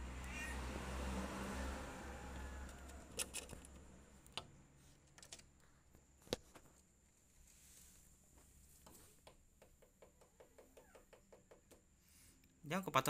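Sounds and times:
bird beak tapping on glass: 9.6 - 11.8.

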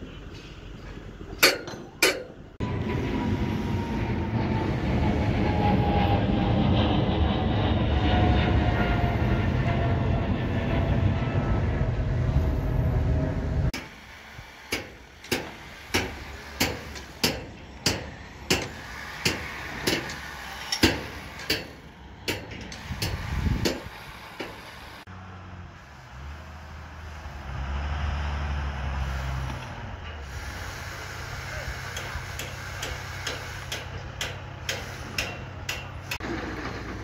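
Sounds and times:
low steady rumble: 0.0 - 24.2
jet airliner flying overhead: 0.0 - 27.6
hammer striking concrete formwork: 1.4 - 2.4, 14.7 - 24.7, 31.8 - 37.0.

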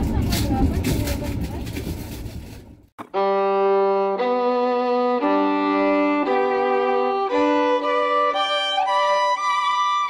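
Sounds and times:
slow violin-like melody: 3.0 - 10.0.

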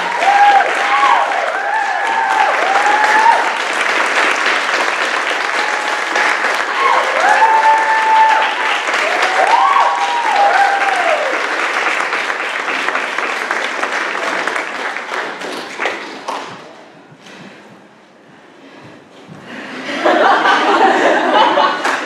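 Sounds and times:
people whooping: 0.0 - 3.6, 5.4 - 11.5
audience applauding: 0.0 - 16.7.

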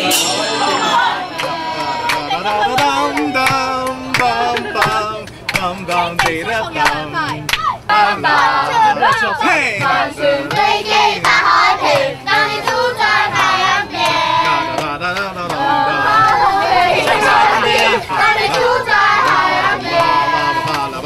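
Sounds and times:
voices singing together: 0.0 - 21.0
sharp hand claps: 1.4 - 7.7.

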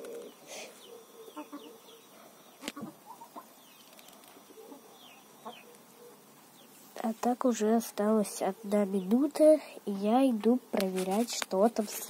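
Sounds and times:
hens clucking: 0.0 - 2.0, 2.6 - 3.7, 4.3 - 6.3.

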